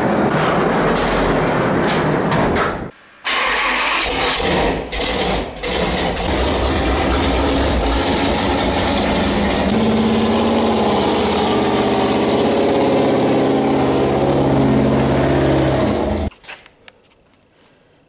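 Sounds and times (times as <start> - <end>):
buggy engine running loud: 4.9 - 16.3.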